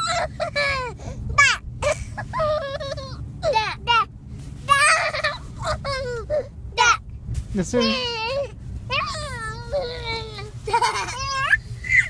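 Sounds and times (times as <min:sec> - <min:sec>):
toddler giggling squeals: 0:00.0 - 0:03.8, 0:09.0 - 0:12.0
low rumble of moving truck: 0:00.0 - 0:12.0.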